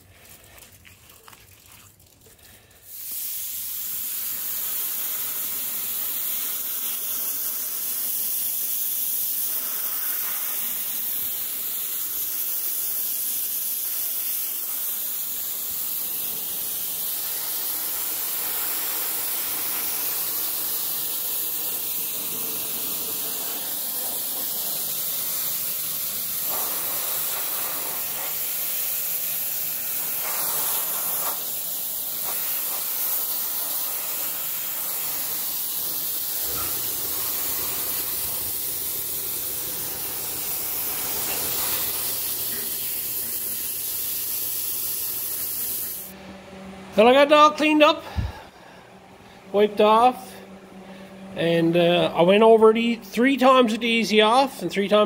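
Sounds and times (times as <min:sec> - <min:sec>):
spray gun hissing: 0:02.6 - 0:46.2.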